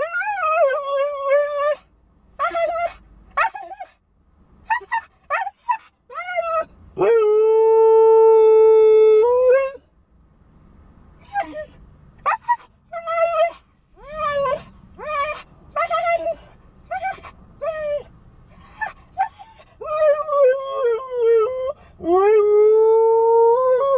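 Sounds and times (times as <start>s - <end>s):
puppy whining and yipping: 0.0s - 4.0s, 4.7s - 7.3s, 11.2s - 22.5s
puppy howling: 12.3s - 23.9s.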